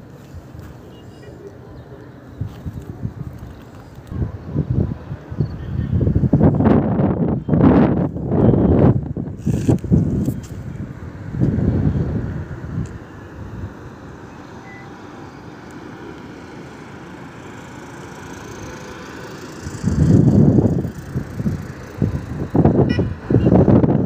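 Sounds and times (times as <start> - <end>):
wind buffeting microphone: 2.3 - 14.0, 19.6 - 24.0.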